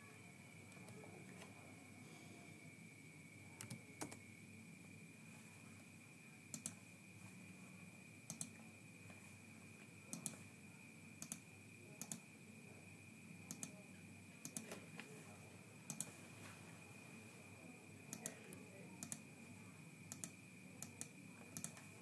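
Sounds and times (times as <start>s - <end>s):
faint high-pitched whine: 0.0s - 22.0s
computer mouse clicking: 3.6s - 4.2s, 6.5s - 6.8s, 8.3s - 8.6s, 10.1s - 10.4s, 11.2s - 11.4s, 12.0s - 12.2s, 13.5s - 13.8s, 14.4s - 14.8s, 15.9s - 16.2s, 18.1s - 18.4s, 19.0s - 19.2s, 20.1s - 21.9s.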